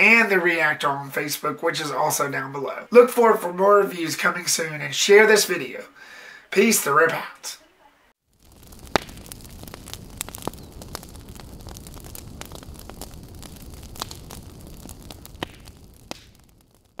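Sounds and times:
large fire crackling: 0:08.2 - 0:17.0
loud pops from fire: 0:08.2 - 0:17.0.

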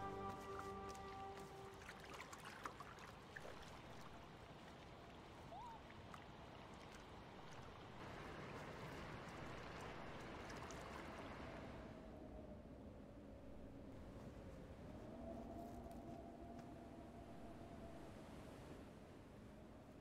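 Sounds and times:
water rushing: 0:00.0 - 0:11.8.

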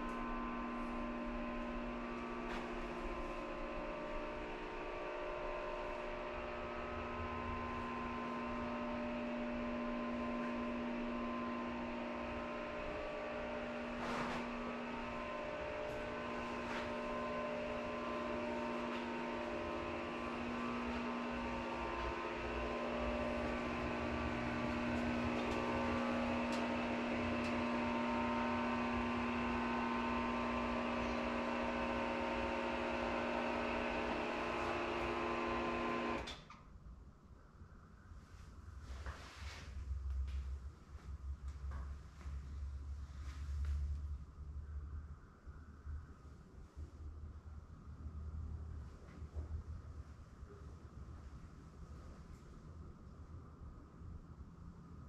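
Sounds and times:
appliance motor humming: 0:00.0 - 0:36.4.

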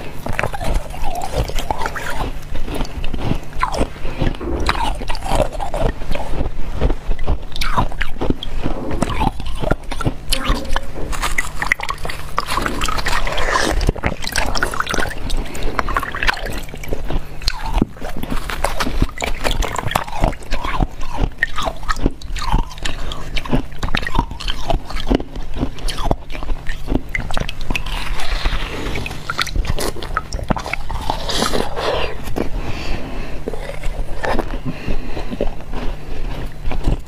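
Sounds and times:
ice crunching in mouth: 0:00.0 - 0:37.0.

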